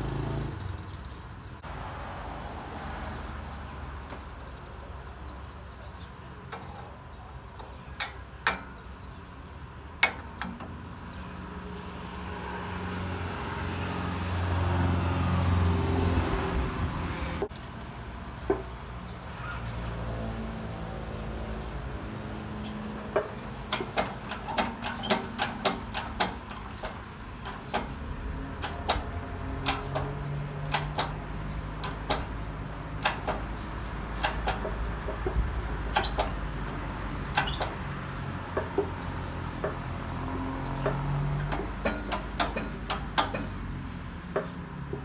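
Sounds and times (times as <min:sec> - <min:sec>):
shop press metallic clicks: 0:23.1 - 0:28.0, 0:28.6 - 0:36.5, 0:37.2 - 0:37.8, 0:40.8 - 0:43.6.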